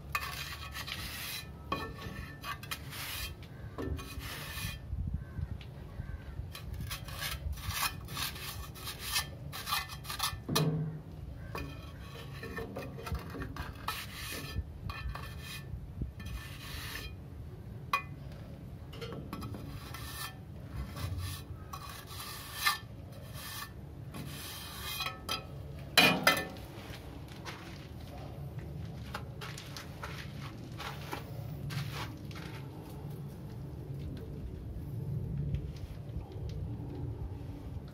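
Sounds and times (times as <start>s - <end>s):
trowel scraping wet mortar: 0.0s - 4.8s, 6.6s - 10.5s, 11.5s - 17.2s, 19.4s - 25.4s.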